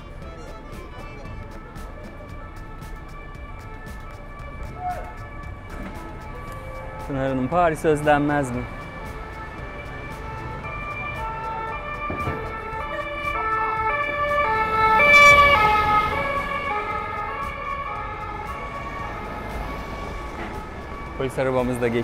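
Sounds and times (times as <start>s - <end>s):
police siren passing: 0.0s - 22.0s.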